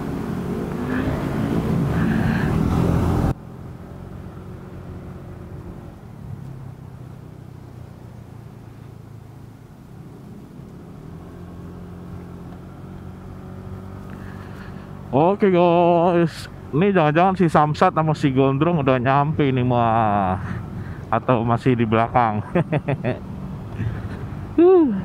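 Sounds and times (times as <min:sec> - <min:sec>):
rush of wind: 0:00.0 - 0:03.4
motorcycle engine running: 0:00.0 - 0:16.7.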